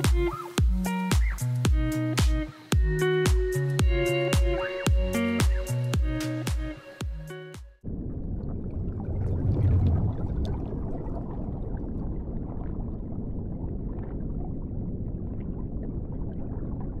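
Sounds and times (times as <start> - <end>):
muffled underwater rumble: 7.8 - 17.0
water bubbling: 7.8 - 17.0.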